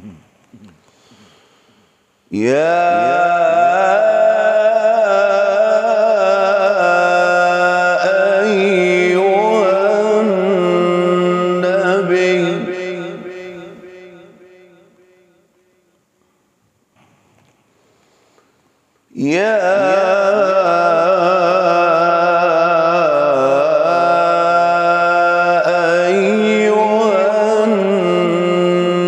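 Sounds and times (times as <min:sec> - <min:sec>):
man reciting melodically: 0:02.3 - 0:15.2, 0:19.1 - 0:29.0.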